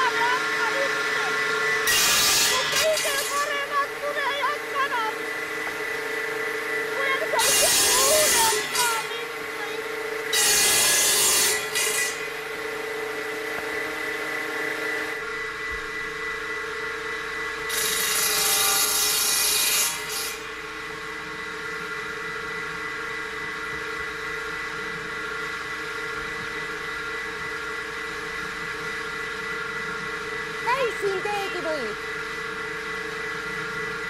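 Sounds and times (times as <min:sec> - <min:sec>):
saw cutting through wood: 0:00.0 - 0:23.7
table saw humming: 0:00.0 - 0:34.0.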